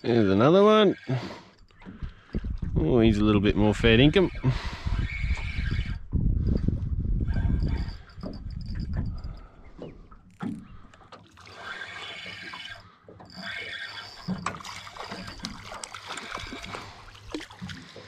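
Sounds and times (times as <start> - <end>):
fishing reel winding: 7.2 - 9.5, 11.5 - 16.8
water splashing: 13.4 - 18.0.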